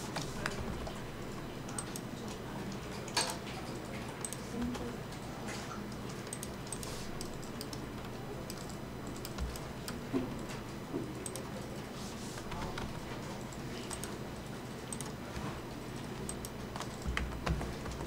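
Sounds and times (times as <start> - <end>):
keyboard and mouse clicks: 5.9 - 10.6, 12.4 - 14.2, 14.9 - 15.2, 16.3 - 18.0.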